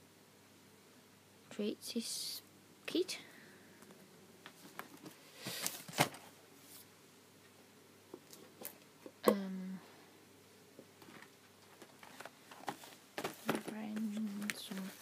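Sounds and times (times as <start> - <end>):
packaging rustle: 11.0 - 15.0.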